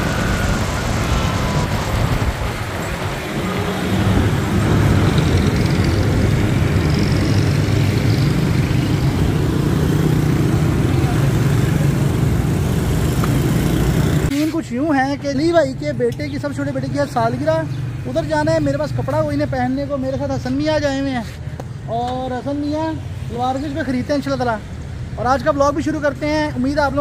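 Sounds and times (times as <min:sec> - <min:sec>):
vehicle engine hum: 0:00.0 - 0:14.3
road noise: 0:00.0 - 0:27.0.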